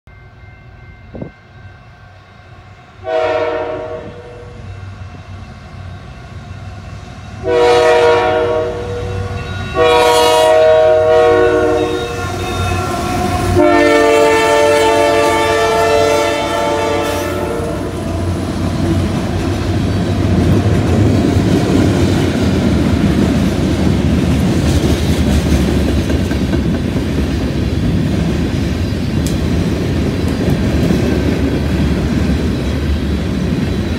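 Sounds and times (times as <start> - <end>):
locomotive air horn: 3.0 - 4.6, 7.4 - 18.5
freight cars rolling on rails: 17.6 - 33.9.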